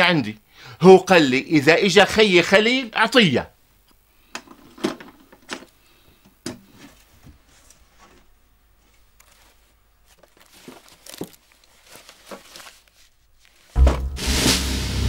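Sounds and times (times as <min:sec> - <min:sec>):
hands rustling velvet pouches: 0:06.8 - 0:13.8
loud dramatic music: 0:13.8 - 0:15.0.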